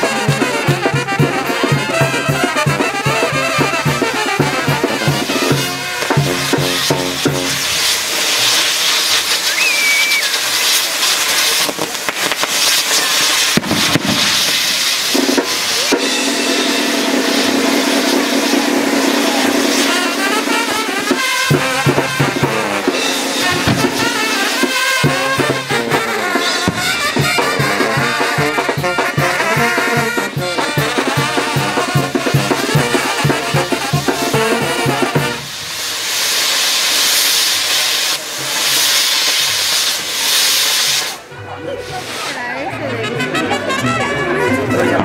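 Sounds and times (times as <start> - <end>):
drum beat: 0.0 - 7.9, 11.7 - 35.4
brass band playing: 0.0 - 36.6, 40.2 - 45.0
fireworks hissing: 0.0 - 43.6.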